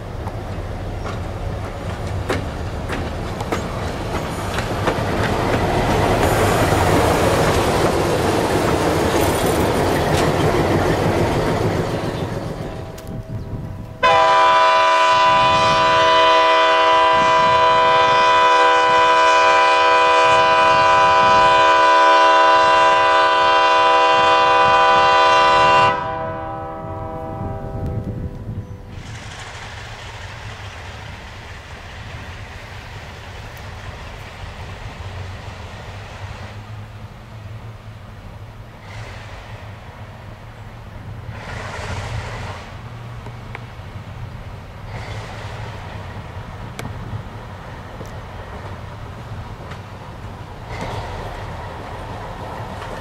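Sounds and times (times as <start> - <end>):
diesel locomotive passing: 0.0 - 53.0
locomotive air horn chord: 14.0 - 28.4.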